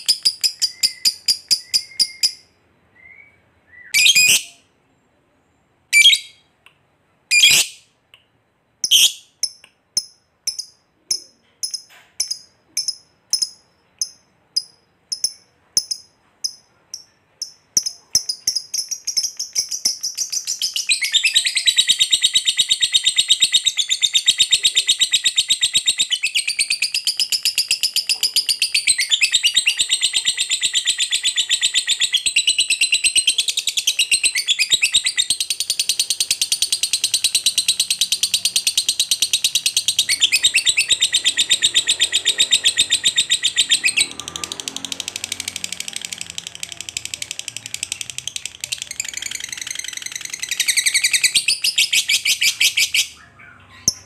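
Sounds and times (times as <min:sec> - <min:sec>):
lovebird squawks: 0:05.9 - 0:06.4, 0:07.3 - 0:07.8, 0:08.8 - 0:09.2, 0:36.8 - 0:44.3
lovebird short chirps: 0:05.9 - 0:06.5, 0:07.3 - 0:07.8, 0:08.8 - 0:09.6
lovebird chattering trill: 0:08.8 - 0:44.2, 0:45.8 - 0:54.0.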